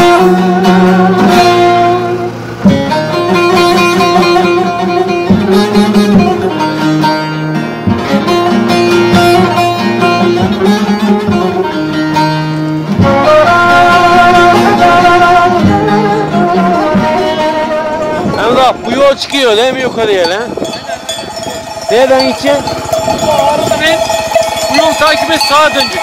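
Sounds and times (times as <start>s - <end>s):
plucked strings melody: 0.0s - 26.0s.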